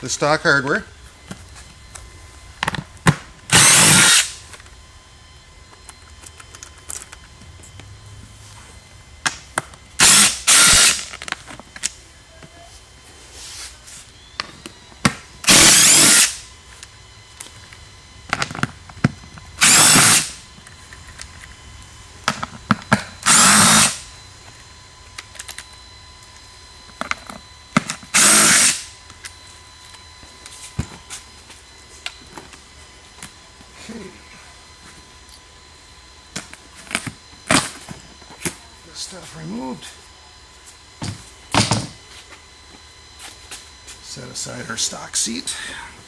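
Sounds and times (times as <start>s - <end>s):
cordless drill driver running: 3.4s - 4.8s, 9.7s - 11.9s, 14.1s - 30.0s.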